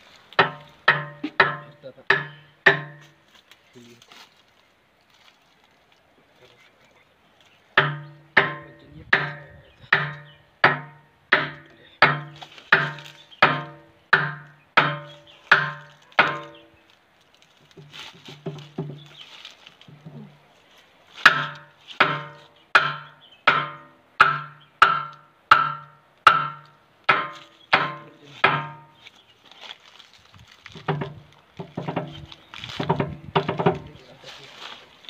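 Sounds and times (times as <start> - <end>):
hammer striking steel pin: 0.4 - 3.1, 7.8 - 16.7, 21.3 - 29.0.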